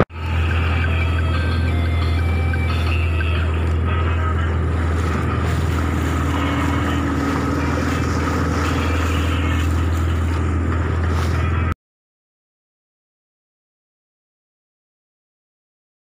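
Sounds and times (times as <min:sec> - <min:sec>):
boat engine running: 0:00.0 - 0:11.8.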